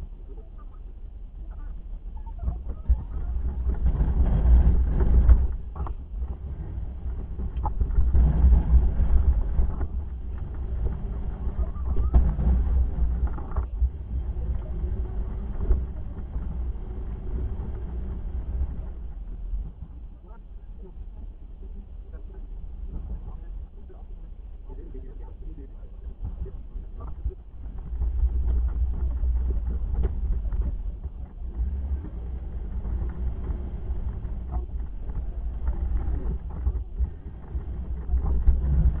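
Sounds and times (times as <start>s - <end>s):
truck engine rumbling: 0.0s - 39.0s
plow scraping slush: 2.5s - 39.0s.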